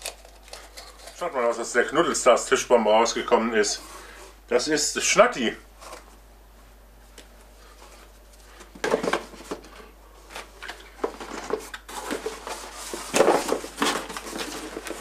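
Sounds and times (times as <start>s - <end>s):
cardboard and packaging rustling: 7.5s - 15.0s.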